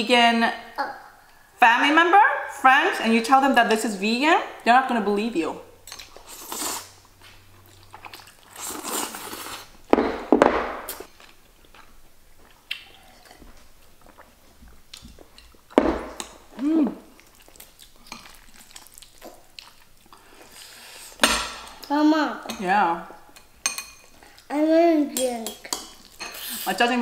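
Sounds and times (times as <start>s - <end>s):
chewing: 6.0s - 9.7s, 11.0s - 15.7s, 17.2s - 20.7s
noodles slurped: 7.7s - 9.7s.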